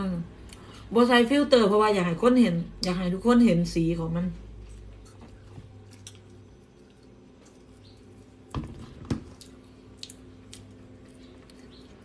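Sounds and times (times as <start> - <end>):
faint chewing: 4.4 - 12.0.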